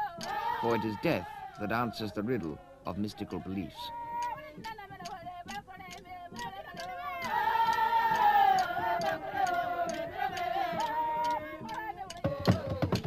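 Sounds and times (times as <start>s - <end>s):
women singing wailing notes: 0.0s - 13.0s
clicking beat: 0.1s - 0.9s, 4.2s - 13.0s.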